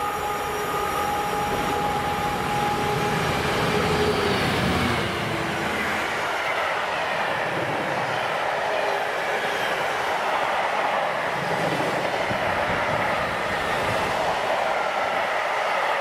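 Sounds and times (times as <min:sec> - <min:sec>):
diesel locomotive passing: 0:00.0 - 0:16.0.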